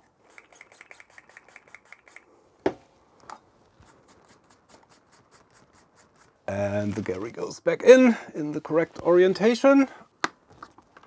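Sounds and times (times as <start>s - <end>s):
brush scrubbing metal: 3.8s - 6.5s.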